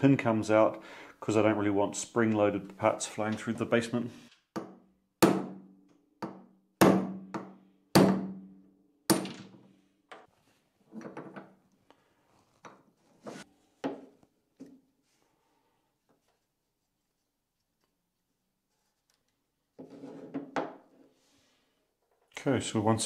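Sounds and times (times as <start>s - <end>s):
hammer striking metal punch: 6.2s - 8.4s.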